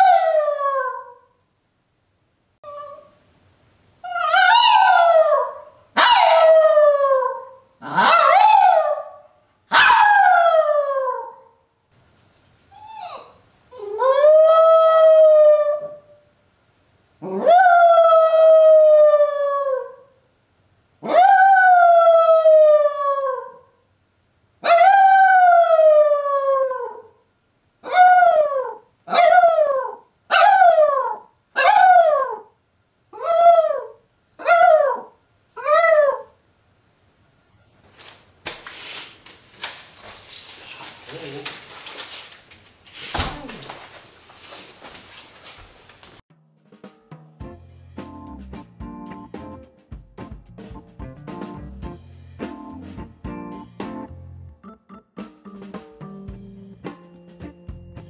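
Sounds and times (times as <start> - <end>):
dog howling: 4.1 - 11.5, 27.8 - 32.5, 33.2 - 36.4.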